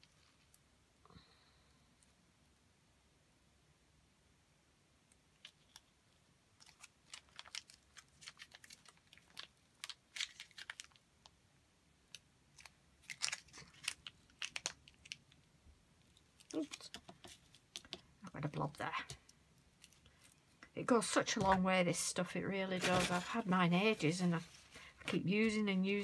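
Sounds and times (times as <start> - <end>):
plastic tube crinkling and clicking: 6.6 - 11.4, 12.1 - 18.2.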